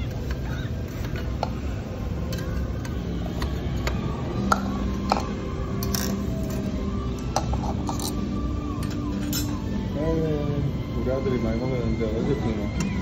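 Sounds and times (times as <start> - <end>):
faint background music: 0.0 - 13.0
restaurant room noise: 0.0 - 13.0
dishes and utensils clinking: 7.3 - 8.2, 8.8 - 9.6.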